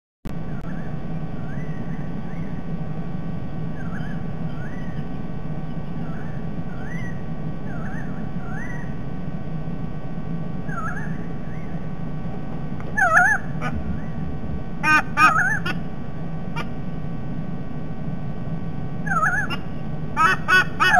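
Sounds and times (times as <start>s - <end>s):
steady low hum: 0.3s - 20.9s
birds calling with rising notes: 0.4s - 2.8s, 3.7s - 9.0s, 10.6s - 11.9s, 12.8s - 16.8s, 19.0s - 20.9s
sea eagle honking call: 13.0s - 14.2s, 14.8s - 15.8s, 16.5s - 16.7s, 19.1s - 20.9s.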